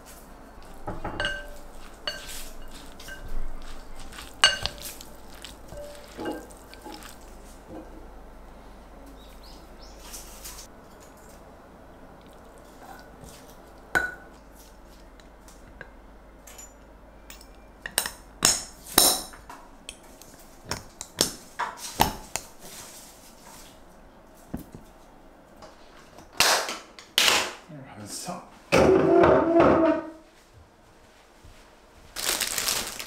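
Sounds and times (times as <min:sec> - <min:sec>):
utensil clinking on glass jar: 0:04.1 - 0:07.3.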